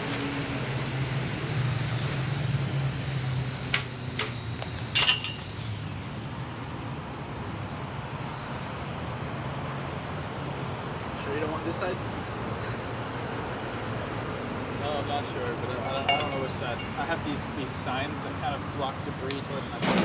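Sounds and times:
low outdoor hum: 0:00.0 - 0:19.8
sharp clicks and clinks: 0:15.8 - 0:17.5.

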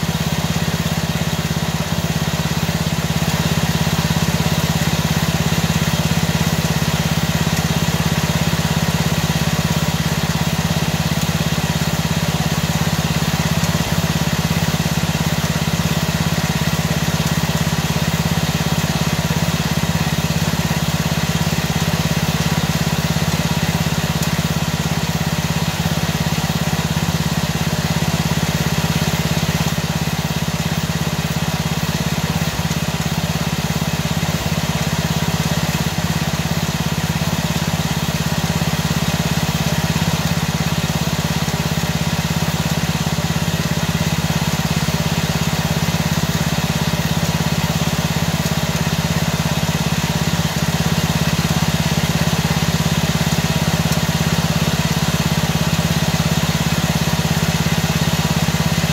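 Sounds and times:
lawn mower engine idling: 0:00.0 - 0:58.9.

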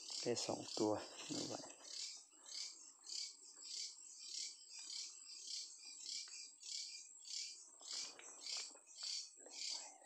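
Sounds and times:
pulsing insect chorus: 0:00.0 - 0:10.0.

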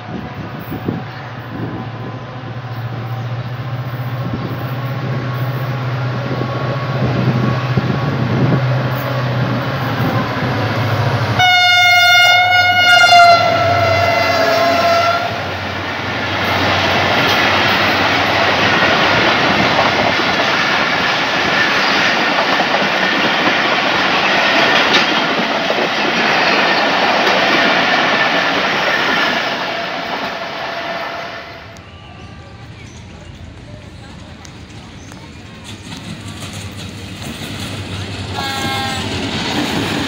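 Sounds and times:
train horn: 0:00.0 - 0:04.8, 0:11.4 - 0:15.6, 0:29.6 - 0:32.5, 0:38.3 - 0:39.4
diesel locomotive rumbling: 0:00.0 - 0:40.0
train wheels clattering: 0:16.1 - 0:40.0.

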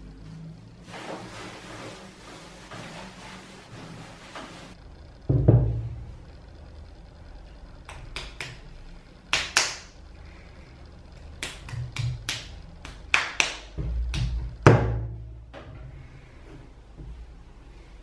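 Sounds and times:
hands slapping wet clay: 0:09.3 - 0:09.9, 0:11.4 - 0:14.4.

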